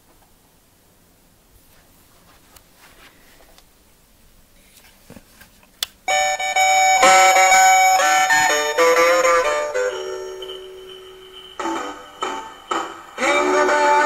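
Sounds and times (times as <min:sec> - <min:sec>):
electronic chiming tune: 0:06.1 - 0:14.0.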